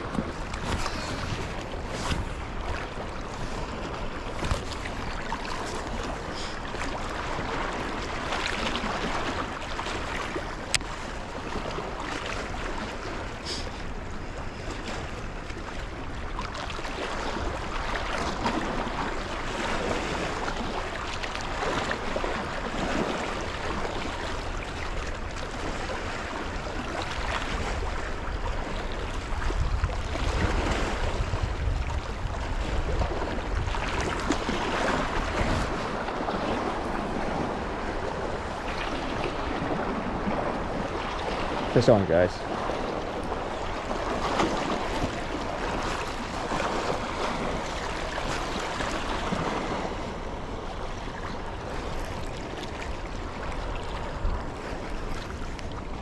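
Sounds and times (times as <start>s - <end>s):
wind buffeting microphone: 0.0s - 10.3s, 22.3s - 56.0s
river water rushing: 0.0s - 14.0s, 33.3s - 56.0s.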